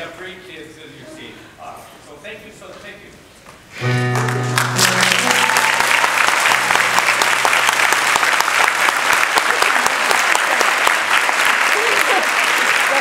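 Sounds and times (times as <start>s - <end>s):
audience applause: 3.9s - 13.0s.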